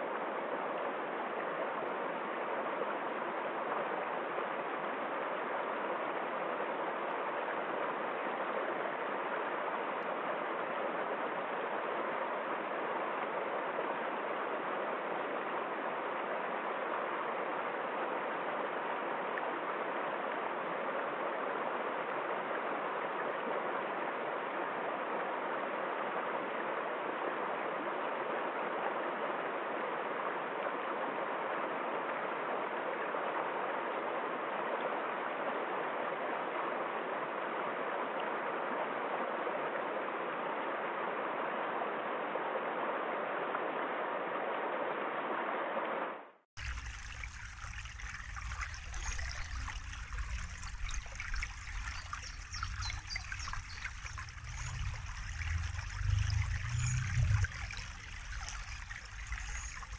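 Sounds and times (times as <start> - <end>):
brook trickling: 46.6 - 59.9
stream rushing over rocks: 46.6 - 59.9.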